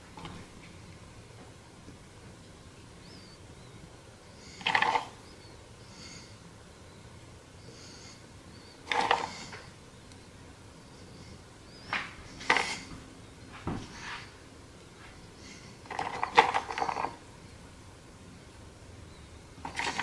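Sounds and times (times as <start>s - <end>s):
nuts rattling in plastic container: 19.7s - 20.0s.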